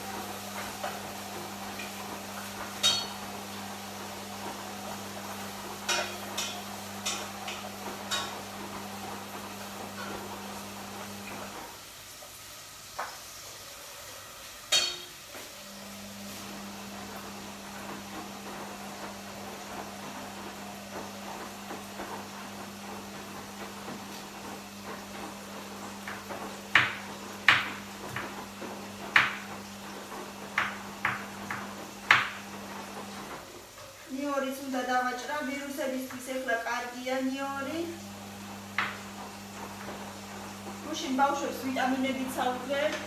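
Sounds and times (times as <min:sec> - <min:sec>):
kitchenware knocking on counter: 0:26.0 - 0:28.4, 0:29.1 - 0:29.4, 0:30.6 - 0:32.4.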